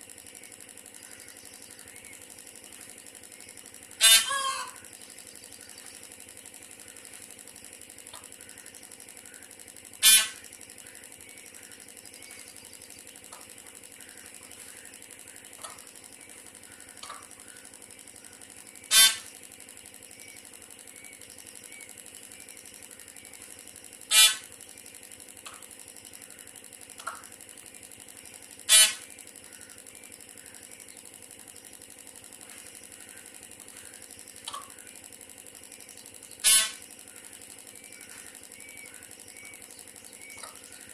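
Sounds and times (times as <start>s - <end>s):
faint steady hum: 0.0s - 40.9s
peahen honking calls: 3.9s - 4.9s, 10.0s - 11.0s, 18.9s - 19.3s, 24.1s - 24.5s, 28.7s - 29.7s, 36.4s - 36.8s.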